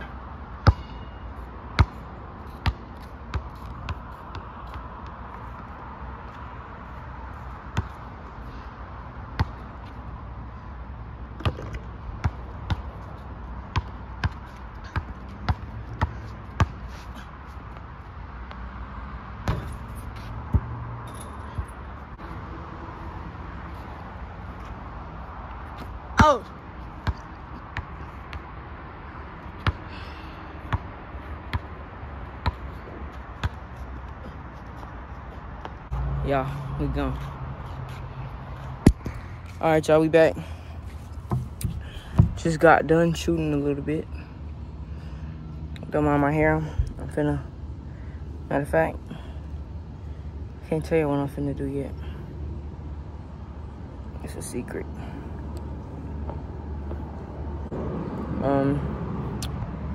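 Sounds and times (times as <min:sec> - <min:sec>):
basketball bouncing on asphalt: 0:00.5 - 0:10.2, 0:11.2 - 0:22.2, 0:23.5 - 0:37.3, 0:37.9 - 0:43.5, 0:56.2 - 0:58.0.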